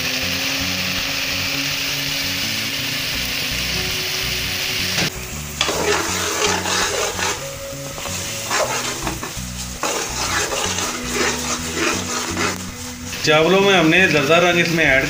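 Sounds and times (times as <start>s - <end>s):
food sizzling in a pot: 0.0s - 15.0s
metal spoon scraping a pot: 5.6s - 13.1s.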